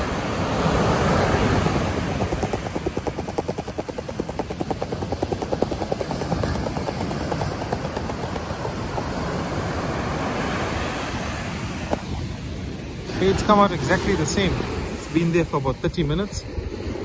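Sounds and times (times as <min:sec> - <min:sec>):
wind: 0:00.0 - 0:17.0.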